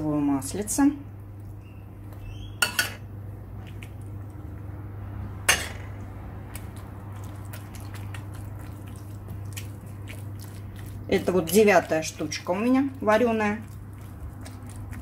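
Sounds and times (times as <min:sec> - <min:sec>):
steady low hum: 0:00.0 - 0:15.0
metal spoon clinking on pan: 0:02.6 - 0:03.0.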